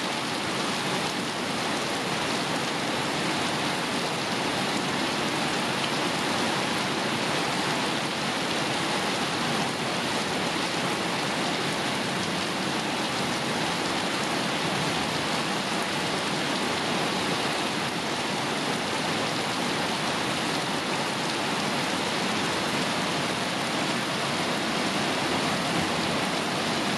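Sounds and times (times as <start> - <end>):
rain falling on leaves: 0.0 - 26.9.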